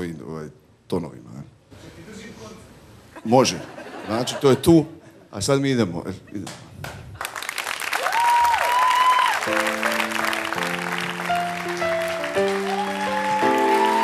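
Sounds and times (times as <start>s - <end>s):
audience applause: 7.2s - 14.0s.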